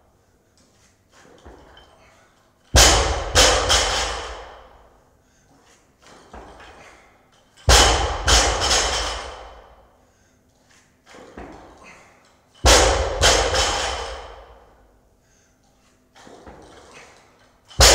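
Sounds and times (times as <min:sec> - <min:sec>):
barbell dropped on floor: 0:02.8 - 0:04.8, 0:07.7 - 0:09.7, 0:12.6 - 0:14.6.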